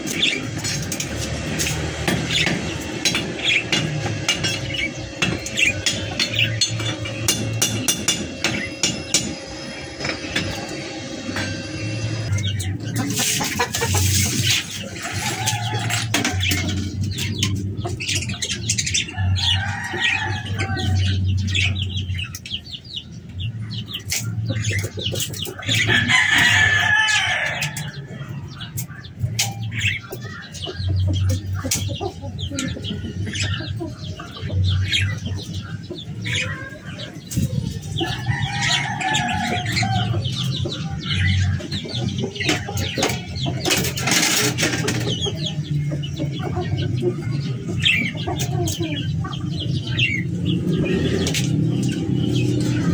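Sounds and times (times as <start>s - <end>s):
chicken clucking and crowing: 0.0s - 52.9s
sharp metallic taps: 0.1s - 10.6s.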